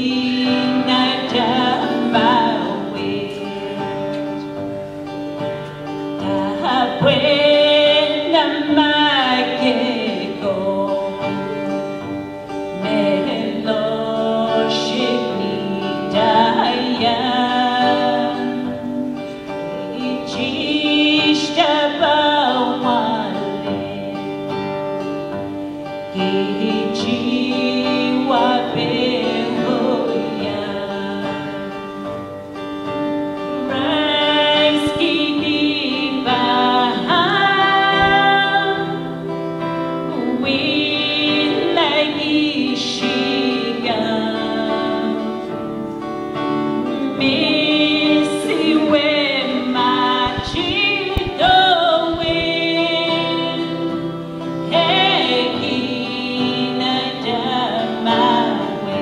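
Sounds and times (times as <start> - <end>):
group singing led by woman: 0.0 - 4.1, 12.7 - 24.4, 26.2 - 31.9, 33.6 - 39.2, 40.0 - 45.7, 46.6 - 59.0
guitar: 0.0 - 59.0.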